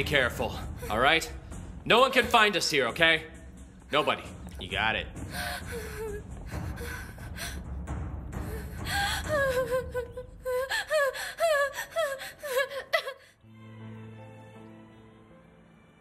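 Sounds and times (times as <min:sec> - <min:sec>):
soft music: 0:00.0 - 0:16.0
woman sobbing: 0:05.3 - 0:07.7, 0:08.4 - 0:13.4.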